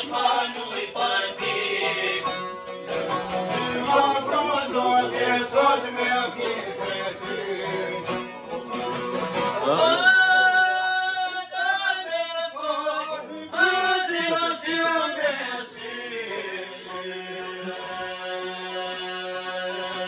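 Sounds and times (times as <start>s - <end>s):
plucked lutes: 0.0s - 10.8s
man singing: 3.5s - 8.2s, 9.6s - 20.0s.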